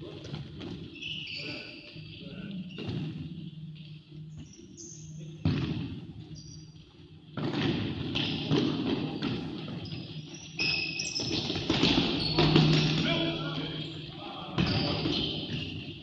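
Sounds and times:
shoes squeaking on court floor: 0.0s - 16.0s
ball kicked thudding in hall: 5.4s - 6.2s, 7.3s - 10.1s, 11.2s - 13.3s.

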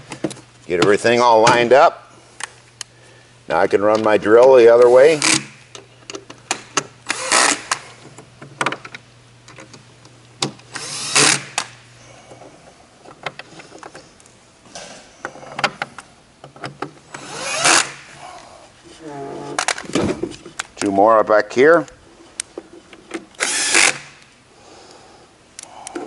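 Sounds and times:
cordless drill driving screws: 5.1s - 5.6s, 7.1s - 7.9s, 10.7s - 11.7s, 17.2s - 18.1s, 23.4s - 24.2s.

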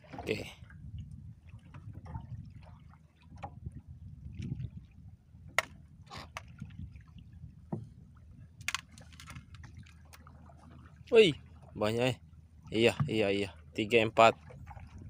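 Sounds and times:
water lapping against boat hull: 0.0s - 15.0s
fishing line ticks and splashes: 8.6s - 11.0s.

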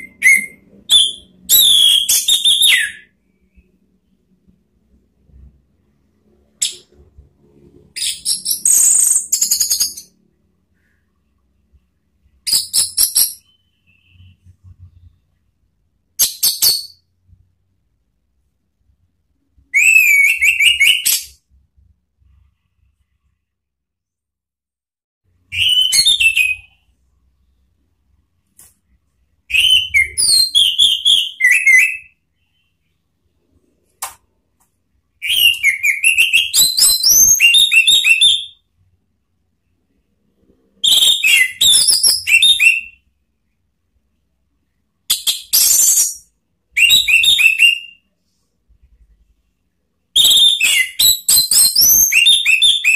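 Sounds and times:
thrush singing whistled notes: 19.7s - 21.4s, 45.2s - 48.0s.

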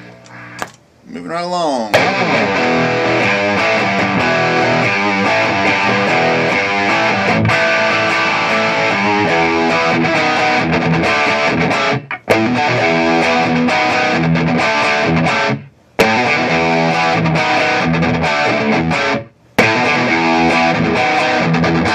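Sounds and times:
lightly distorted electric guitar: 1.9s - 21.9s.

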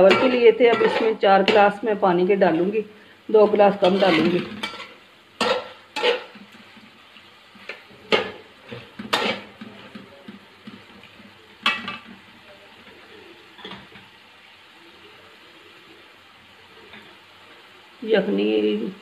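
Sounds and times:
meat sizzling: 0.0s - 19.0s
metal fork scraping a pan: 0.1s - 1.7s, 3.8s - 6.4s, 7.7s - 9.8s.

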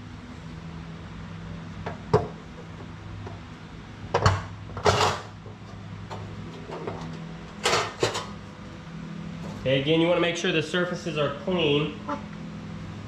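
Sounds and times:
metal pan scraping: 4.8s - 5.3s.

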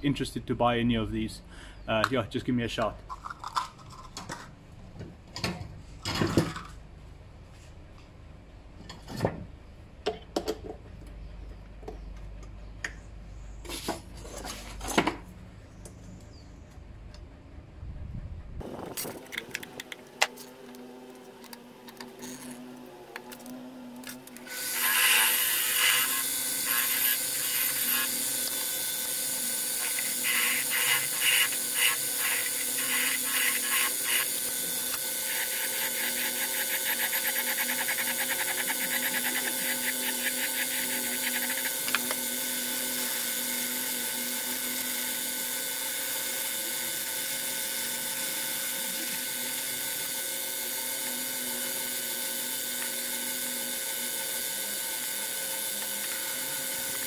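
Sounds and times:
metal lathe running: 24.4s - 57.0s
file rasping on spinning metal: 24.5s - 42.2s.

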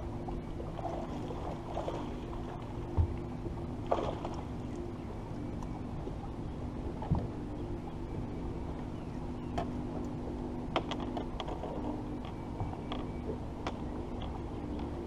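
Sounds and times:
steady low hum: 0.0s - 15.0s
sharp clicks and knocks: 9.6s - 14.9s.

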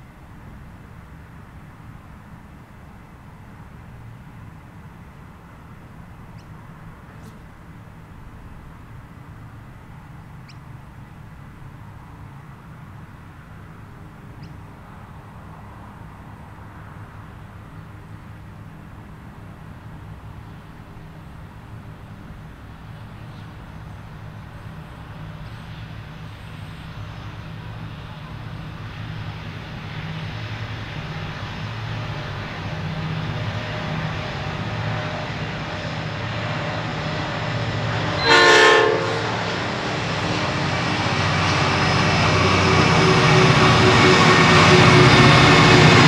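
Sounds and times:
diesel locomotive engines droning: 0.0s - 46.0s
locomotive horn blast: 33.8s - 46.0s.

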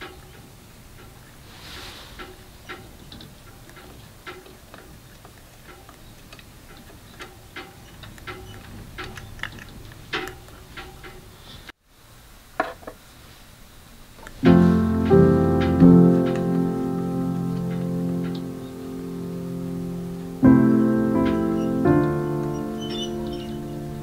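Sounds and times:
light clicks of grinder parts: 2.1s - 11.7s
piano and guitar music: 14.4s - 24.0s.

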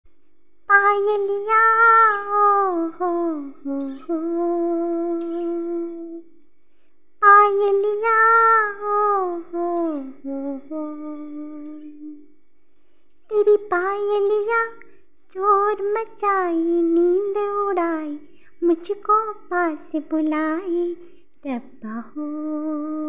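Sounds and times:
high solo voice singing: 0.7s - 6.3s, 7.2s - 12.2s.

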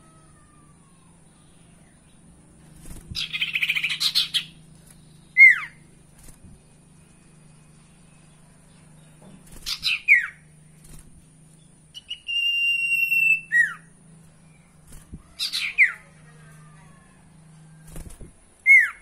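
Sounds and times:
faint low hum: 0.0s - 19.0s
bird whistling calls: 3.2s - 4.6s, 5.2s - 5.8s, 9.7s - 10.5s, 11.9s - 13.9s, 15.4s - 16.1s, 18.6s - 19.0s.

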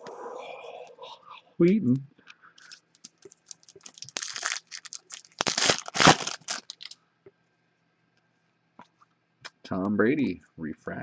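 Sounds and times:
foil wrapper crinkling: 2.6s - 7.0s.

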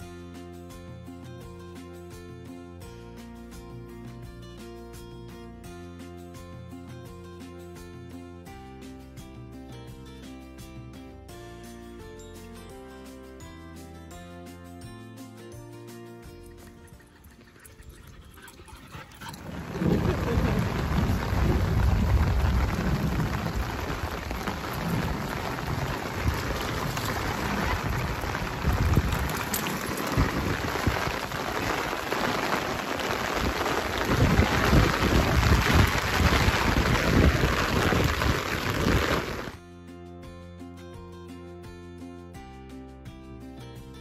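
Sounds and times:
low rumble: 19.2s - 31.5s
heavy rain on puddles: 19.2s - 39.6s.

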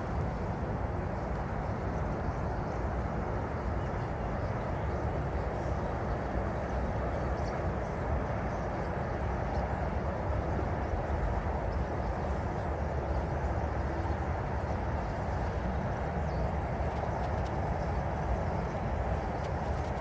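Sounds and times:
distant road traffic rumble: 12.3s - 20.0s.

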